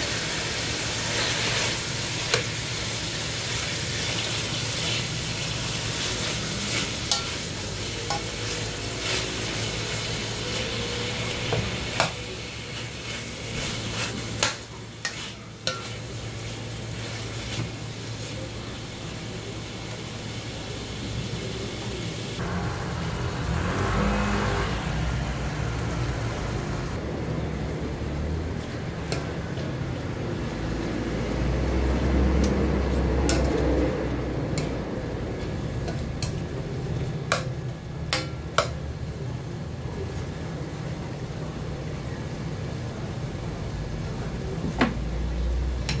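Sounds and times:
meat sizzling in a pot: 0.0 - 27.0.

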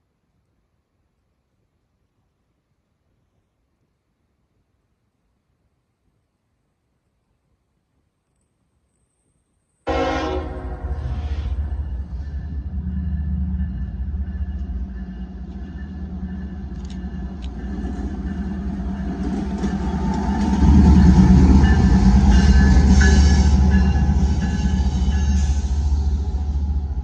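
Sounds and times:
train horn blast: 9.9 - 17.7
diesel locomotive engine: 9.9 - 27.0.

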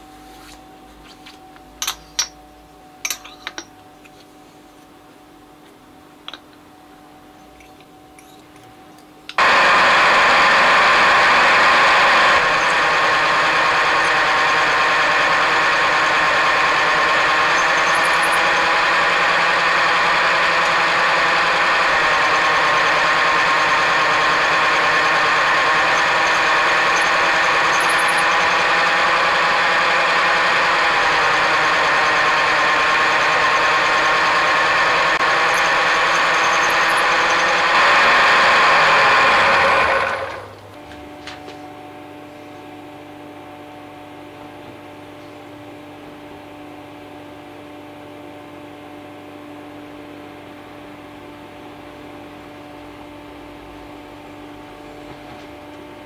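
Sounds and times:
milling machine running: 9.3 - 41.1.

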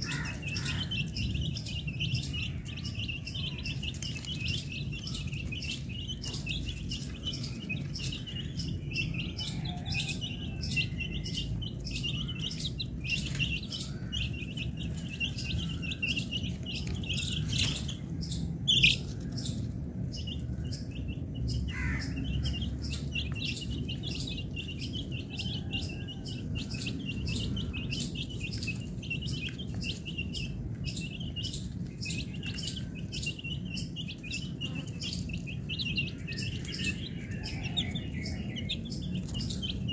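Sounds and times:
baby chicks peeping: 0.0 - 39.9.

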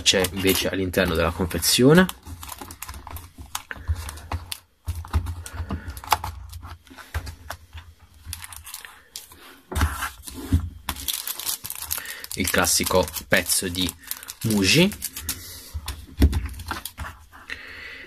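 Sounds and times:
paper rustling: 8.3 - 17.4.

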